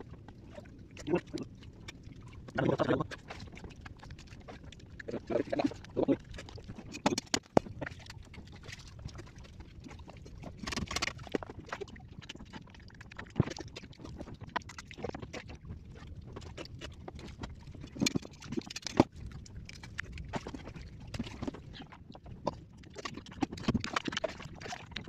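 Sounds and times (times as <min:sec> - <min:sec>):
wet lip smacks and slurps: 0:16.4 - 0:25.0.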